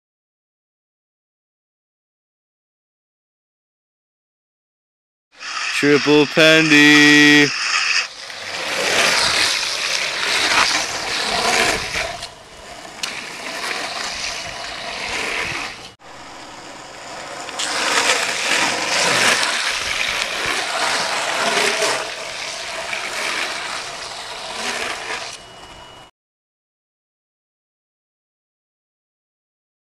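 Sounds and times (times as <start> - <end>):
longboard wheels sliding on asphalt: 5.4 - 26.0
wheel squeal: 6.9 - 26.1.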